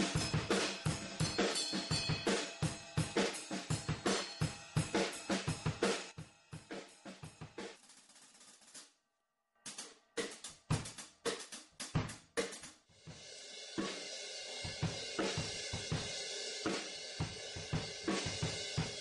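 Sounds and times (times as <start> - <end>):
cymbals washing: 0.0 - 7.8
kick and snare beat: 0.0 - 7.8, 9.7 - 13.2, 14.6 - 19.0.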